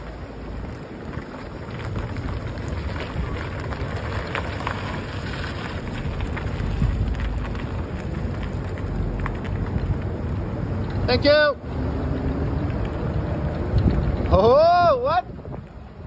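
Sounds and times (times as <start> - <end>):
crackles: 0.0 - 11.1
road and tyre rumble: 0.0 - 16.0
wind buffeting microphone: 0.0 - 16.0.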